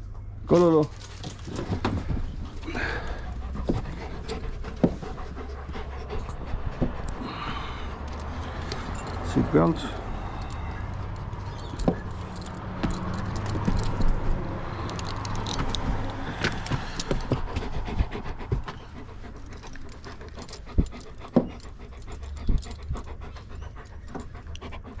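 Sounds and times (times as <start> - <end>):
dog panting: 1.4 - 25.0
metal chain and tags jingling: 8.1 - 17.2.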